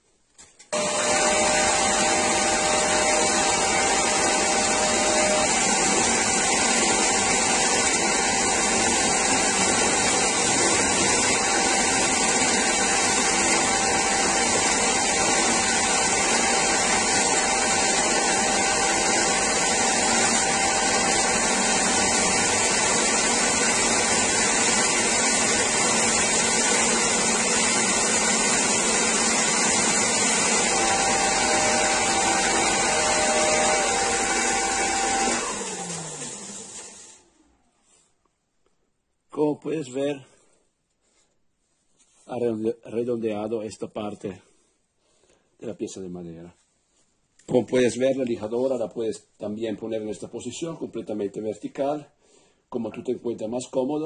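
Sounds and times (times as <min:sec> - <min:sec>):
wood being sanded: 0:00.8 - 0:35.9
belt sander running: 0:00.8 - 0:37.6.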